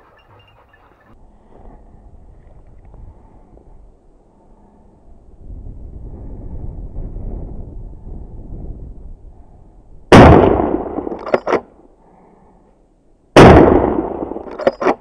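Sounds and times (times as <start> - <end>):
wind rumble on microphone: 1.2 - 11.1
shotgun shots echoing: 10.1 - 11.6, 13.4 - 14.5.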